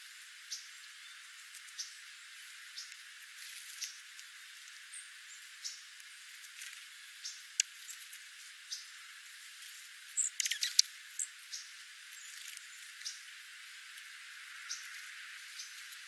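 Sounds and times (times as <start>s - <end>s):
birds pecking seeds: 0.1s - 16.0s
sharp clicks: 10.3s - 10.9s.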